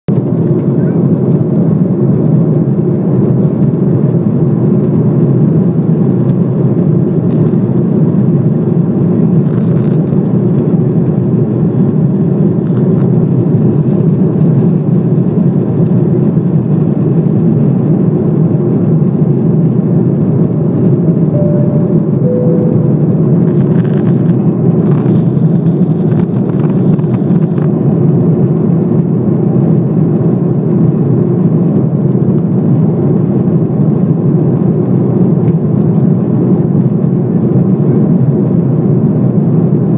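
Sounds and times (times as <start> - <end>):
jet engines droning: 18.4 - 24.8.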